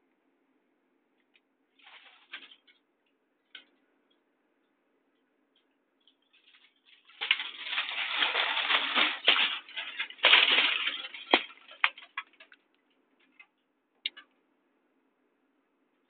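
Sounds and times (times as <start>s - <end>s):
meter speaker crackling and clicking: 2.3s - 14.4s.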